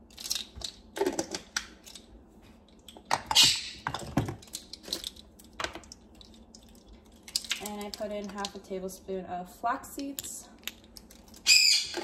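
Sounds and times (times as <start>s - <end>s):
plastic containers clicking and rattling: 0.1s - 2.1s, 2.9s - 8.6s.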